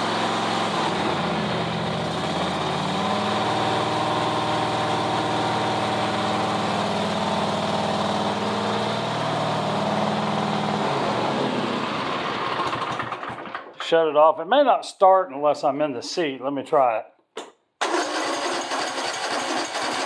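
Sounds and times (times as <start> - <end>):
mower engine idling: 0.0 - 13.9, 17.8 - 20.0.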